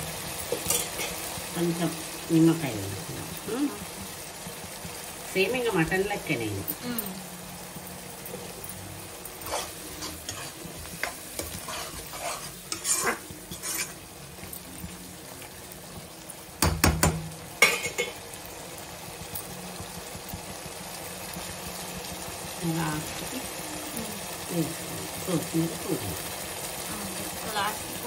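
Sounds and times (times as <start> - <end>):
curry sizzling: 0.0 - 28.0
spatula scraping pan: 0.5 - 1.3, 9.3 - 14.2
spatula clacking on pan: 16.6 - 18.2.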